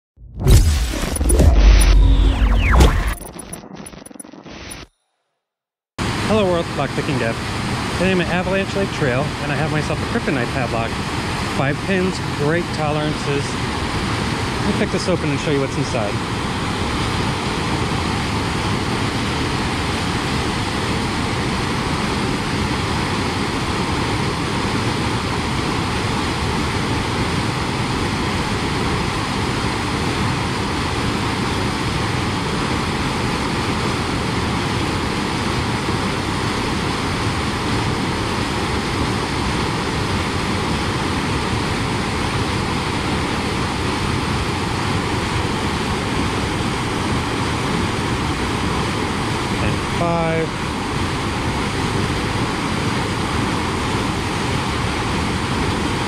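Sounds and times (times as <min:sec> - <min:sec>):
creek white water rushing: 0:06.0 - 0:16.1, 0:39.3 - 0:56.0.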